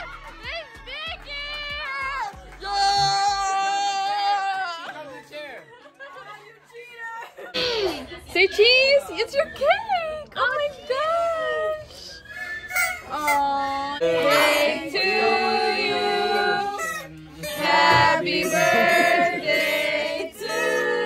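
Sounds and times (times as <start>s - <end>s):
group singing unaccompanied: 14.0s - 21.0s.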